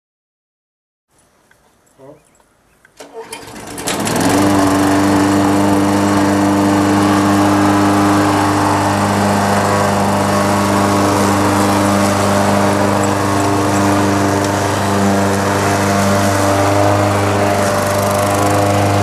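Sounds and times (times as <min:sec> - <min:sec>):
lawn mower engine running: 0:03.0 - 0:19.0.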